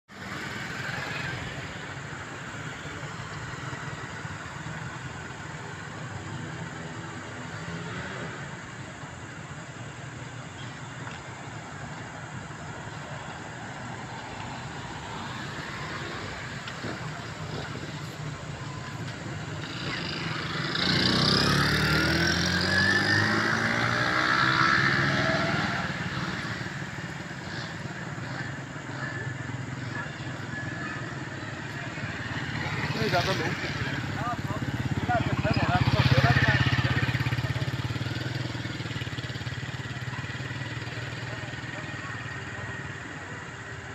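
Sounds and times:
road traffic hum: 0.1 - 43.9
vehicle driving past: 18.6 - 41.6.

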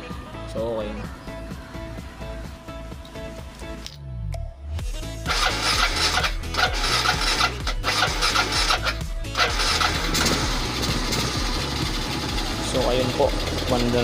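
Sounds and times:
motorcycle engine starting and running: 5.1 - 14.0.

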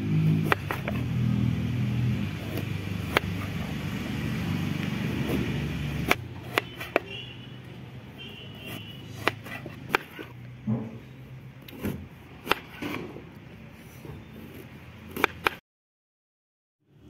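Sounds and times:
low motor hum: 0.0 - 7.0
knife slicing turnip: 0.4 - 1.0, 2.4 - 3.7, 5.1 - 7.2, 8.6 - 10.3, 15.0 - 15.6.

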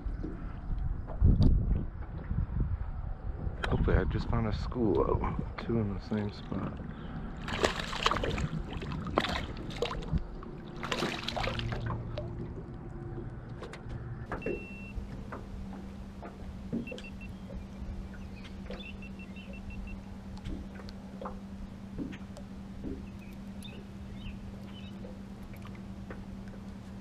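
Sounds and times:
low steady hum: 0.0 - 27.0
fish splashing at surface: 7.4 - 12.4.

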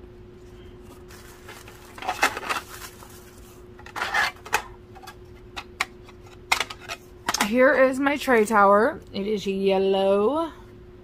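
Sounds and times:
faint steady hum: 0.0 - 11.0
plastic packaging rustling: 0.8 - 4.5.

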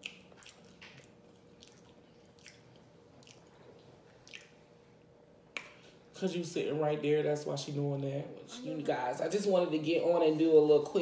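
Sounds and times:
chewing with wet lip smacks: 0.0 - 4.7.

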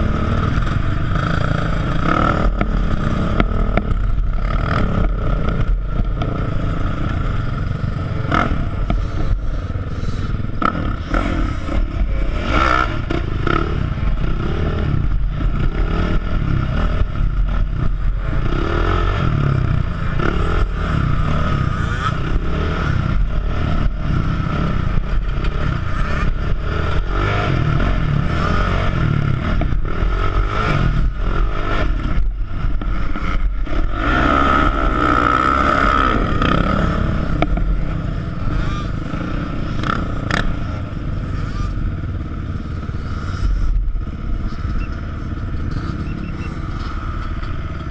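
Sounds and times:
quad engine running under throttle: 0.0 - 47.9.

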